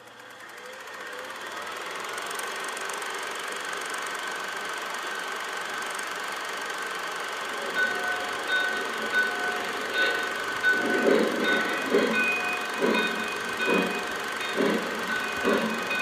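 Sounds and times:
film projector whir and clatter: 0.0s - 16.0s
thin steady whine: 3.7s - 16.0s.

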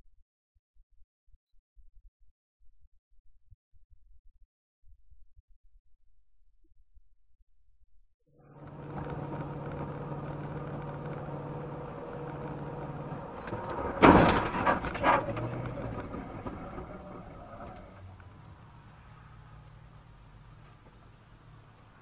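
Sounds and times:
car cabin running hum: 8.4s - 18.6s
smaller bang: 8.6s - 18.0s
loud car collision impact: 8.6s - 18.2s.

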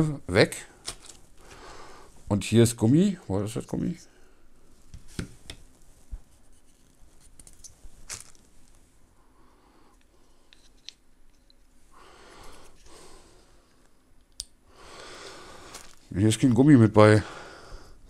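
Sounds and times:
packaging rustling: 0.8s - 1.6s, 7.2s - 8.8s, 15.6s - 16.1s.

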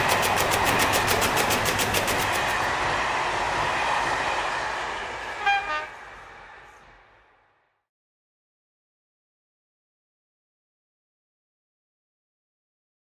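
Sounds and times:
steam train: 0.0s - 7.8s
steam train whistle: 4.0s - 6.2s.

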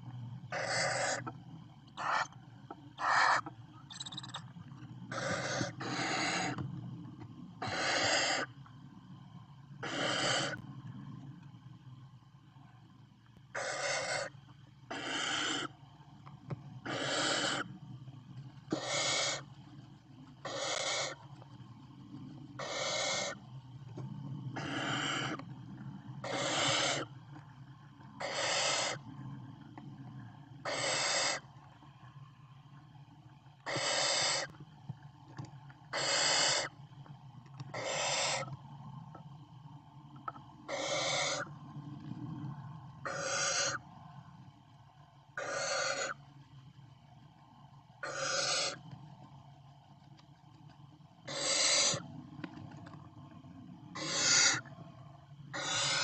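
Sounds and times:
owl chicks hissing calls: 0.5s - 1.4s, 2.0s - 4.4s, 5.1s - 6.6s, 7.6s - 8.6s, 9.8s - 10.6s, 13.5s - 14.3s, 14.9s - 15.8s, 16.8s - 17.7s, 18.7s - 19.5s, 20.4s - 21.2s, 22.6s - 23.4s, 24.6s - 25.4s, 26.2s - 27.1s, 28.1s - 29.1s, 30.6s - 31.4s, 33.6s - 34.5s, 35.9s - 36.8s, 37.7s - 38.5s, 40.2s - 41.6s, 43.0s - 43.8s, 45.4s - 46.2s, 48.0s - 48.9s, 51.2s - 52.0s, 53.9s - 54.7s, 55.5s - 56.0s.

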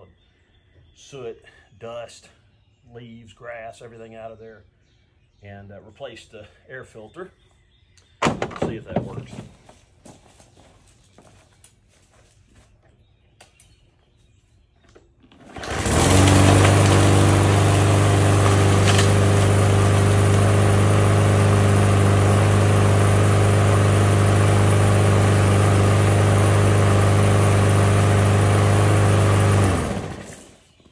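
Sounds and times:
lawn mower engine running: 15.3s - 30.6s.

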